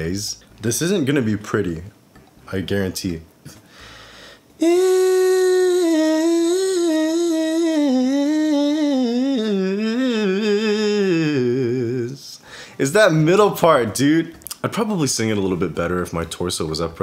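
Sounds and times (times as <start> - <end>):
man singing wordless riff: 4.6 - 12.5.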